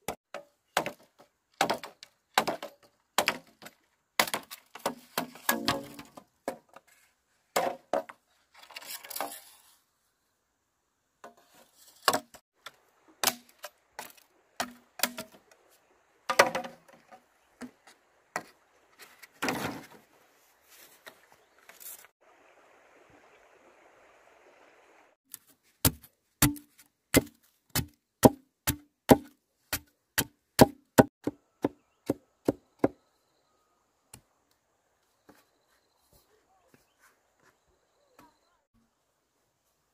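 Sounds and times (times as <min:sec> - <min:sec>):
machete chopping bamboo: 0:00.0 - 0:06.2, 0:13.2 - 0:15.4, 0:25.8 - 0:33.0
machete scraping bamboo: 0:08.5 - 0:09.9, 0:11.3 - 0:12.4.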